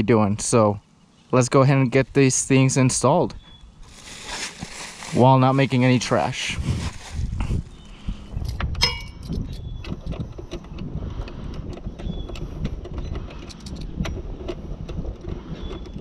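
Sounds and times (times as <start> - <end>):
low rumble: 3.2 - 16.0.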